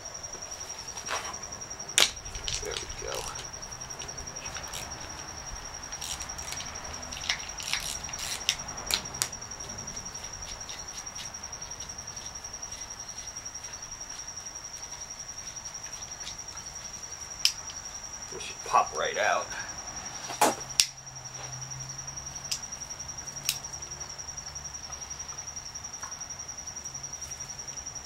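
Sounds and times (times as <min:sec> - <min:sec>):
insect trilling: 0:00.0 - 0:28.0.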